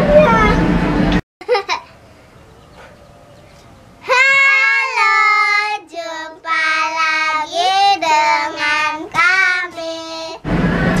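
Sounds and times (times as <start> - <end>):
children singing together: 4.1 - 10.4.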